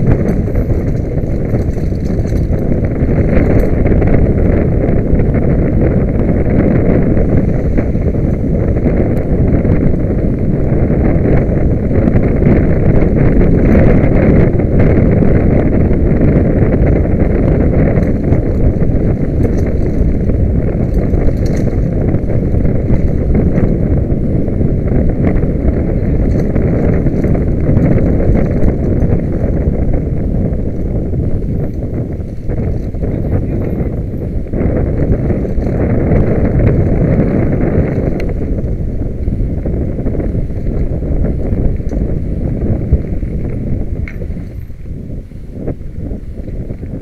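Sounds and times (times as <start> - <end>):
faint ticks and rattles: 0.0 - 5.6, 16.3 - 23.9, 25.2 - 30.1, 30.7 - 44.9
wind buffeting microphone: 0.0 - 47.0.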